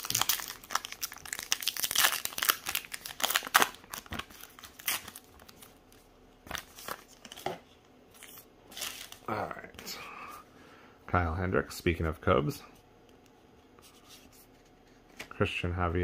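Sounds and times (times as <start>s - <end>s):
wrapper tearing and crinkling: 0.0s - 5.7s, 8.7s - 9.3s.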